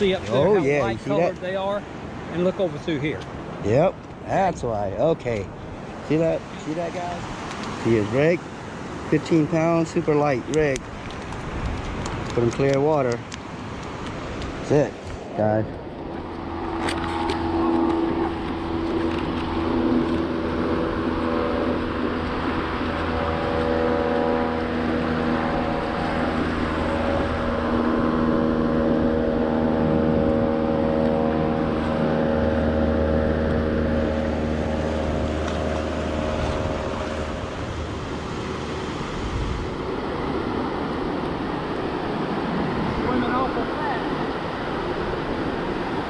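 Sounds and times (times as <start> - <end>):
surf washing up beach: 0.0 - 46.0
wind on microphone: 10.4 - 46.0.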